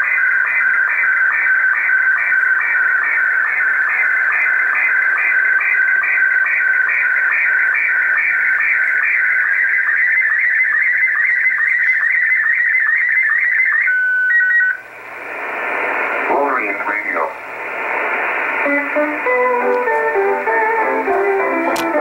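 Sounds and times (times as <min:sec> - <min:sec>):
warbling radio image tones: 0:02.6 - 0:22.0
shortwave static hiss: 0:14.8 - 0:22.0.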